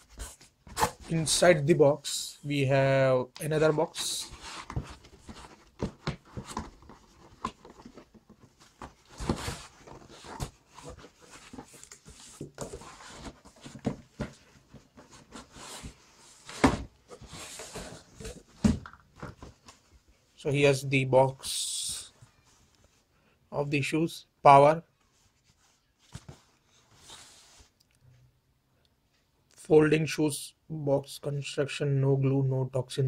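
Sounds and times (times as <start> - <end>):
cardboard scraping and knocking: 3.9 - 19.6.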